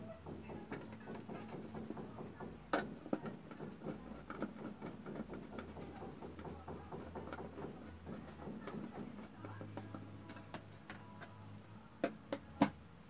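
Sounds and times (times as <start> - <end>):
screwdriver clicking and scraping: 2.7 - 10.6.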